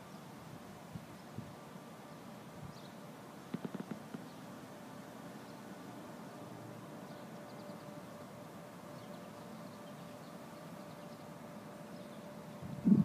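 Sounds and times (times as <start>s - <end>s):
steady background hum: 0.0s - 13.0s
faint high bird chirps: 8.9s - 12.4s.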